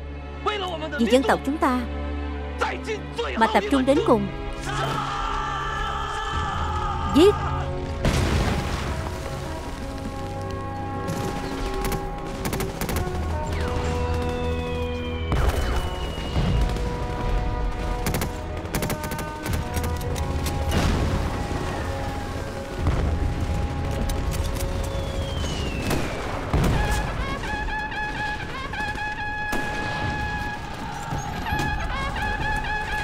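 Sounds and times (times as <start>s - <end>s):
background music: 0.0s - 33.0s
rifle and machine-gun fire: 11.0s - 31.4s
falling whistles: 13.5s - 16.8s, 24.8s - 26.2s.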